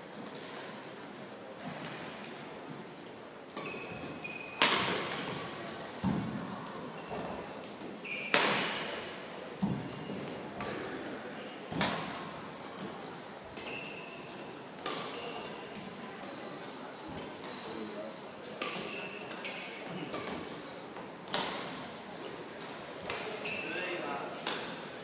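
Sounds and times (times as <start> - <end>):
court shoes squeaking: 3.5 - 9.0, 9.6 - 11.1, 11.7 - 24.8
rackets hitting shuttlecock: 4.6 - 6.1, 7.1 - 8.9, 10.6 - 11.1, 11.7 - 12.3, 14.8 - 15.9, 18.6 - 20.5, 24.4 - 24.9.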